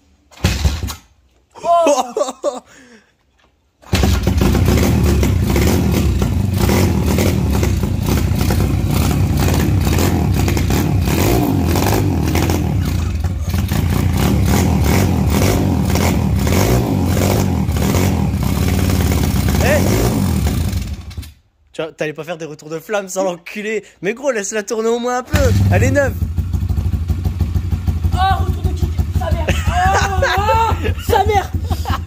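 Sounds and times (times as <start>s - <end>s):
dirt bike engine starting and running: 0.2s - 1.3s, 3.8s - 21.5s, 25.3s - 32.0s.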